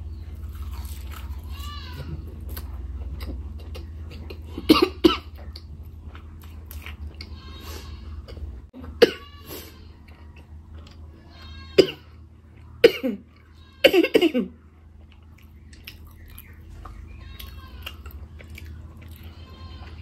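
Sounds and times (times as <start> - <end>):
low steady hum: 0.0 - 20.0
woman coughing: 4.6 - 5.3, 9.0 - 9.4, 12.8 - 13.2, 13.8 - 14.6.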